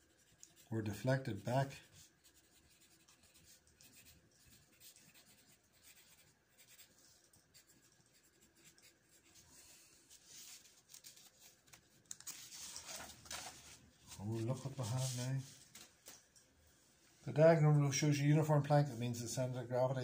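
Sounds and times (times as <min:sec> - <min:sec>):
pen scratching on paper: 0:01.4 - 0:09.4.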